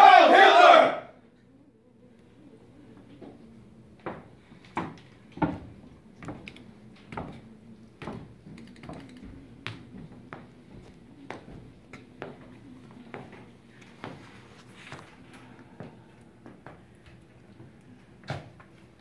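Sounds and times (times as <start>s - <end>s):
footsteps on a stage floor: 4.0s - 8.6s, 9.3s - 17.8s.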